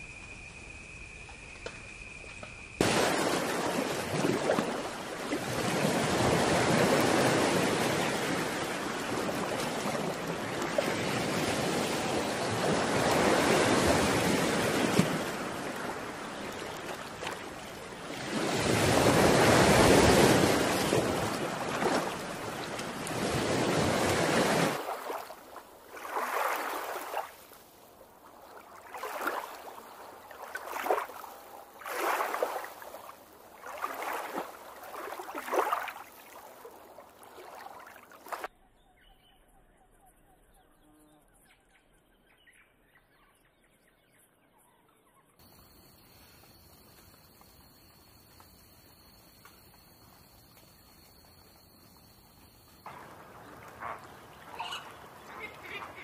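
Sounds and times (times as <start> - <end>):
small waves lapping: 2.8 - 38.5, 45.4 - 56.0
surf washing onto shore: 2.8 - 38.5, 52.9 - 56.0.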